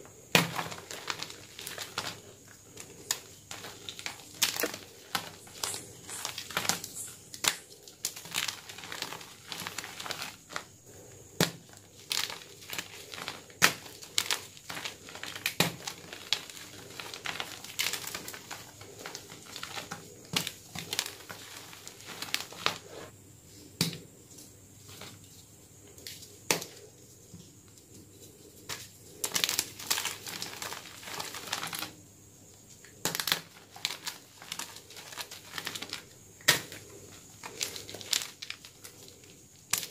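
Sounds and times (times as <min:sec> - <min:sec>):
chalk blocks cracking and crunching: 0:00.0 - 0:23.1, 0:28.4 - 0:32.0, 0:32.8 - 0:39.9.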